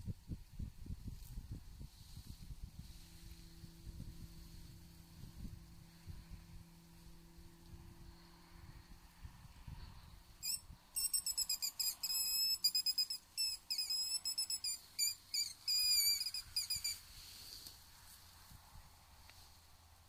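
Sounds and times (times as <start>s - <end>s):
predator call squeaks and squeals: 10.4s - 17.0s.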